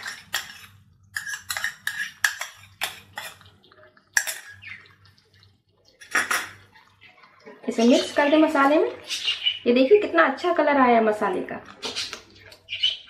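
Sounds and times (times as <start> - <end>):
spoon clinking: 0.0 - 3.4, 4.2 - 4.7
metal spoon scraping bowl: 0.0 - 3.5, 4.2 - 4.8.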